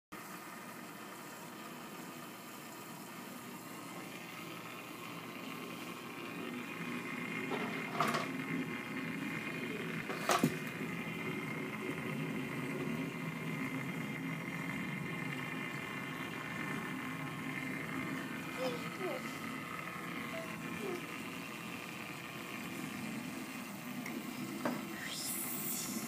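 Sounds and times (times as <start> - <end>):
aquarium pumps humming and bubbling: 0.2 - 26.0
faint whining tones: 8.9 - 26.0.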